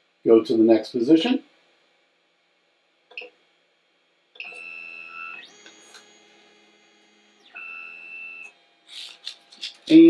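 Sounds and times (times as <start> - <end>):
stepper motors whining: 4.4 - 9.8.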